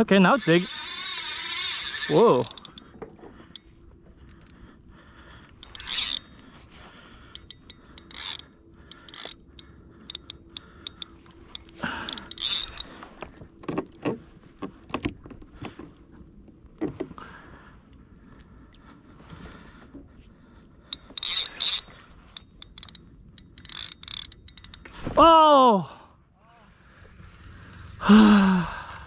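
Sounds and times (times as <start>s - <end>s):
fishing reel ratcheting: 0.2s - 4.6s, 5.6s - 6.5s, 7.2s - 13.1s, 20.9s - 24.9s.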